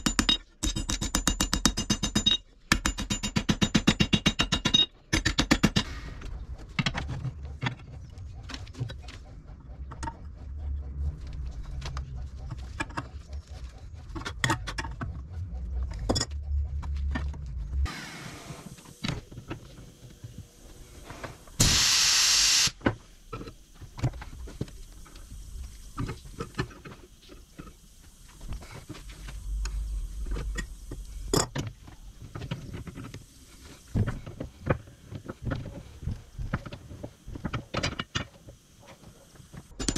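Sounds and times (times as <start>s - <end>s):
low rumble: 6.0s - 17.9s, 28.9s - 32.3s
metal clicks knocks and scrapes: 11.2s - 17.6s
loud hiss: 17.9s - 23.2s.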